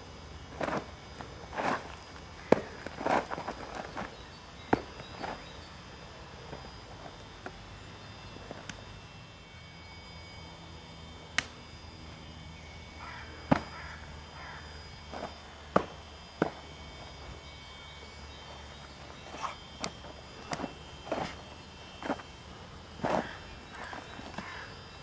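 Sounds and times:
sharp slaps and thuds: 13.5s - 13.7s, 15.2s - 16.6s.

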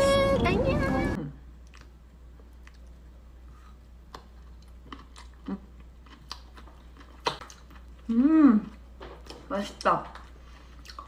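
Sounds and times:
person chewing noodles: 1.6s - 9.4s, 10.2s - 11.0s.

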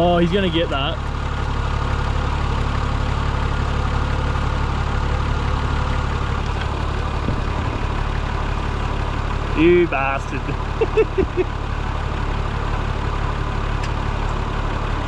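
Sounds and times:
vehicle engine running steadily: 0.0s - 15.0s.

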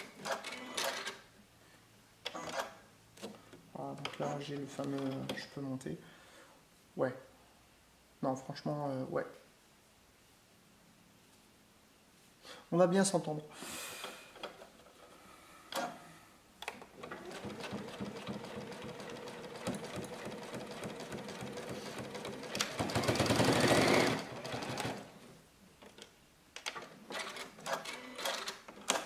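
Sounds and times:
sewing machine stitching: 16.9s - 25.2s, 26.7s - 29.0s.

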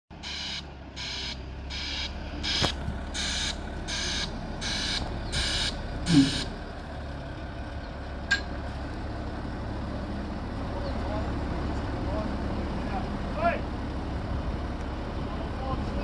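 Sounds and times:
diesel engine running: 0.1s - 16.0s
reversing alarm beeping: 0.2s - 6.5s.

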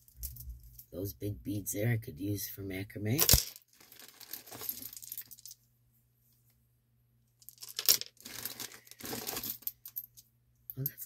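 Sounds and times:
wooden beads clicking and rattling: 7.4s - 10.0s.

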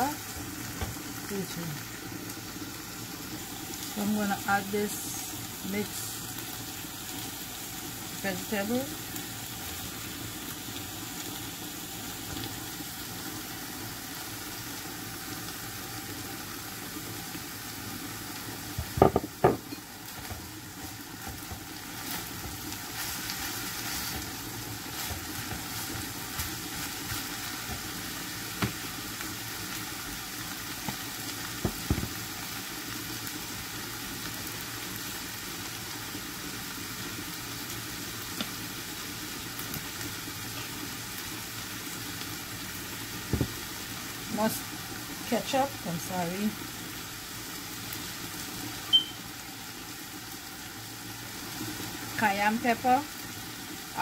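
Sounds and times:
meat and vegetables sizzling in pan: 0.0s - 54.0s.

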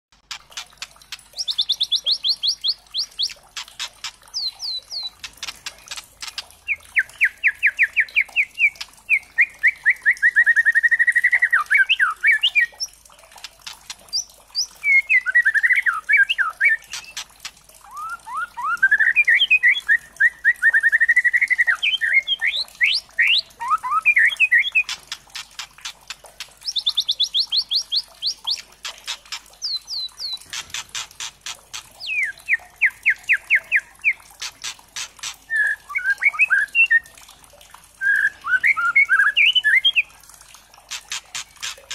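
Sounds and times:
bird clicking ticks: 0.1s - 9.1s, 13.3s - 14.7s, 16.8s - 18.0s, 24.7s - 33.1s, 33.7s - 35.5s, 40.8s - 41.9s
bird singing in rapid runs: 0.2s - 37.1s, 38.0s - 40.1s, 40.9s - 41.9s.

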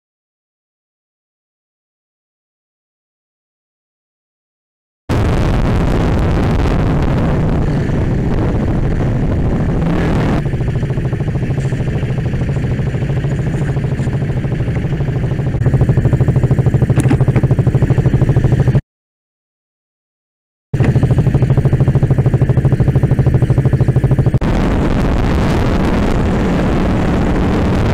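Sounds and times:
motorcycle engine pulsing: 5.1s - 18.8s, 20.8s - 27.9s
wind rushing over camera: 5.1s - 18.8s, 20.8s - 27.9s.

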